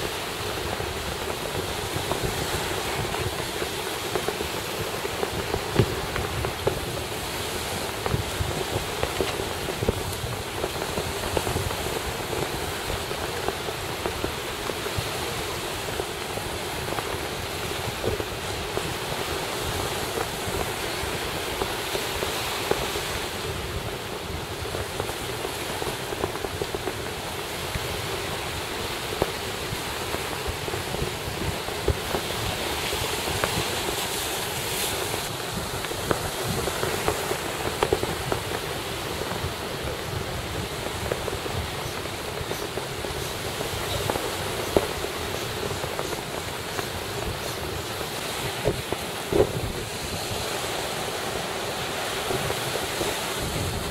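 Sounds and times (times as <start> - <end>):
surf: 0.0 - 53.9
wind buffeting the microphone: 0.0 - 53.9.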